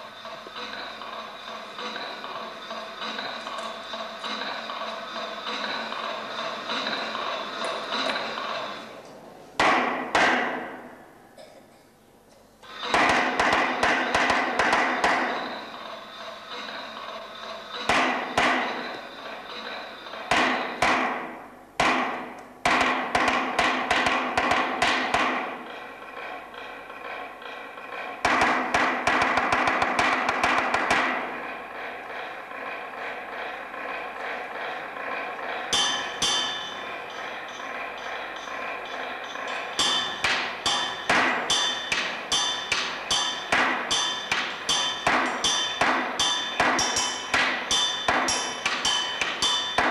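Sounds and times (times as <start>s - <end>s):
hammers striking metal: 0.0s - 9.0s, 9.6s - 11.5s, 12.6s - 49.9s
faint metallic ringing: 35.5s - 49.9s.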